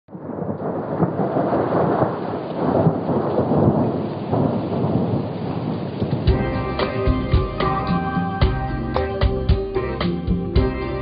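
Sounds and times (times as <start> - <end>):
rain falling: 0.1 - 11.0
thunder rumbling: 0.1 - 11.0
plucked string music: 6.3 - 11.0.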